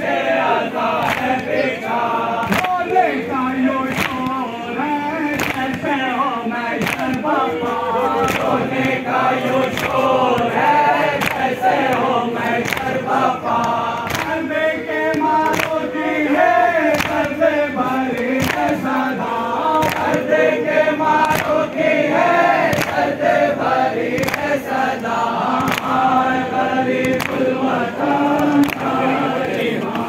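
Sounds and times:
men chanting a lament: 0:00.0 - 0:30.0
sharp rhythmic beats: 0:00.0 - 0:30.0.

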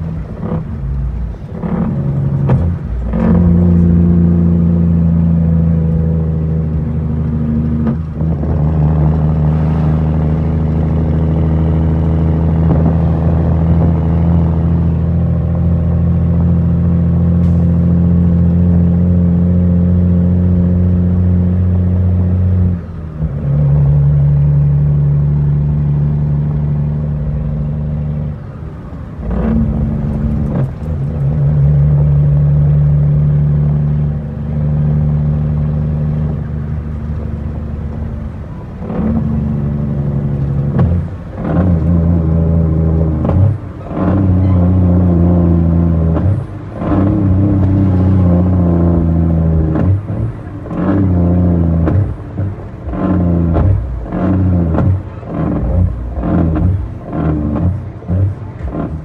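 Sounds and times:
diesel truck engine pulling: 0:00.0 - 0:59.0.

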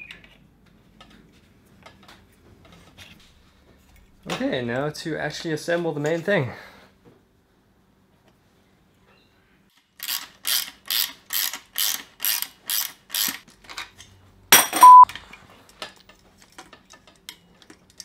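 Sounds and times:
ratchet wrench clicking: 0:10.0 - 0:13.4
test-tone beep: 0:14.8 - 0:15.1.

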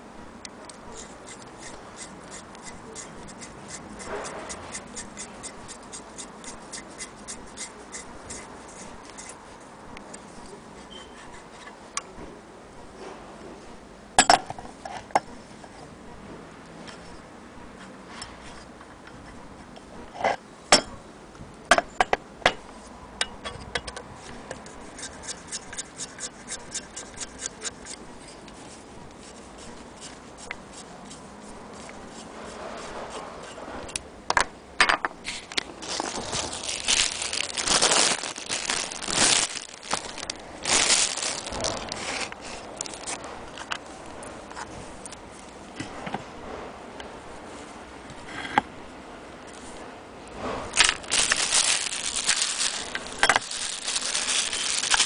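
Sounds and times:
scraping and rustling: 0:35.2 - 0:46.1, 0:50.4 - 0:55.0.

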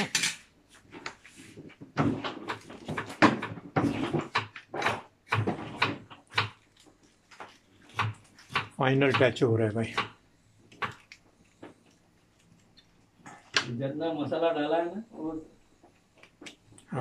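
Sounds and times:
kitchen utensils and cookware clattering: 0:00.0 - 0:00.5.

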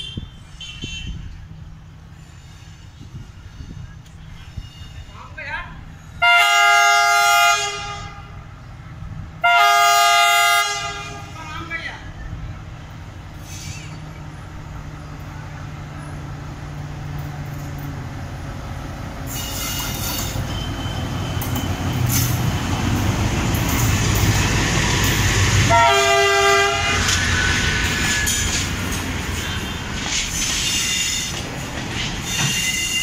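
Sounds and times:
diesel locomotive engine: 0:00.0 - 0:33.0
train horn blast: 0:06.2 - 0:08.5, 0:09.4 - 0:11.4, 0:25.6 - 0:28.5
wheels clattering on rails: 0:16.0 - 0:25.7, 0:26.6 - 0:33.0.

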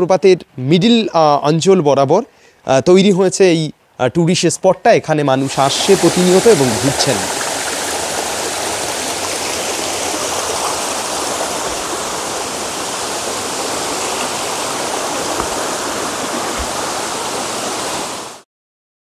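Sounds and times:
stream splashing over rocks: 0:05.4 - 0:18.4.

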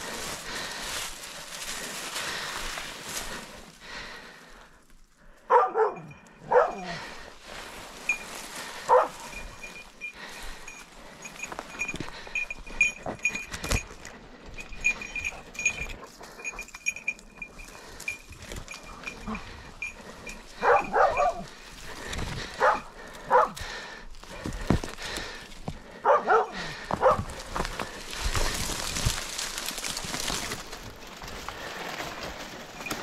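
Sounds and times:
dry brush crackling: 0:00.0 - 0:03.8, 0:06.5 - 0:12.2, 0:26.7 - 0:33.0
dog barking: 0:05.5 - 0:07.0, 0:08.9 - 0:09.3, 0:20.6 - 0:21.5, 0:22.6 - 0:23.6, 0:26.0 - 0:27.3
small bell jingling: 0:08.0 - 0:21.5.

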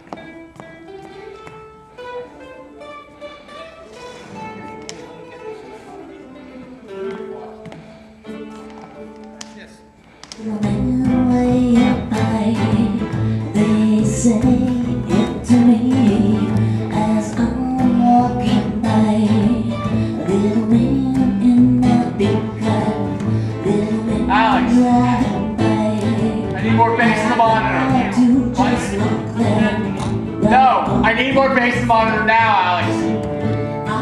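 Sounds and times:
person singing: 0:10.4 - 0:34.0
bass line: 0:10.6 - 0:34.0
strummed acoustic guitar: 0:10.6 - 0:34.0.

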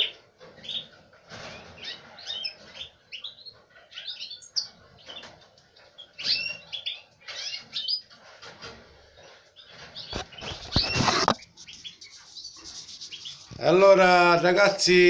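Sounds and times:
canaries chirping: 0:00.0 - 0:15.0.

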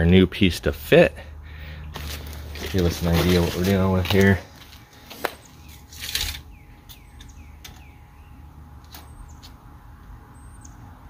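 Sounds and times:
tape measure scraping slide: 0:05.1 - 0:06.5.

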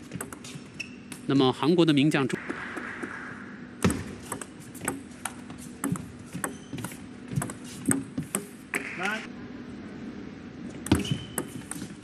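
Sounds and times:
table tennis ball hits: 0:03.8 - 0:06.6.

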